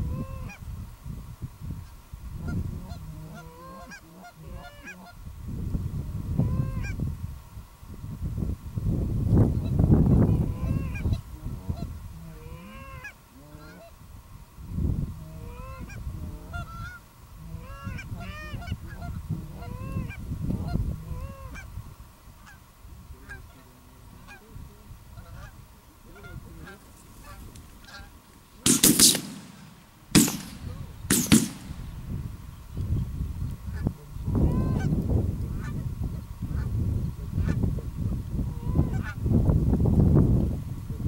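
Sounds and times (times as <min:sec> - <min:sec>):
geese honking and clucking: 0:00.0 - 0:00.6, 0:01.8 - 0:05.2, 0:06.4 - 0:07.0, 0:09.6 - 0:14.0, 0:15.2 - 0:21.8, 0:22.4 - 0:31.8, 0:33.7 - 0:37.6, 0:38.5 - 0:39.2
wind rumbling on microphone: 0:00.0 - 0:41.0.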